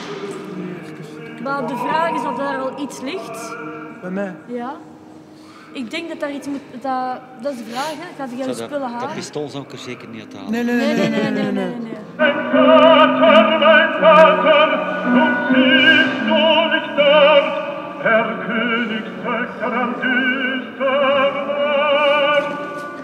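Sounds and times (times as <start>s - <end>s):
operatic singing with vibrato: 0.0s - 4.5s, 10.5s - 23.0s
musical accompaniment: 10.5s - 23.0s.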